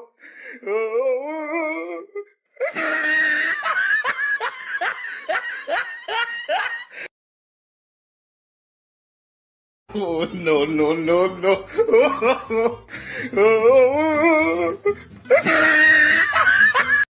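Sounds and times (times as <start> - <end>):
person laughing loudly: 2.6 - 7.1, 11.4 - 17.0.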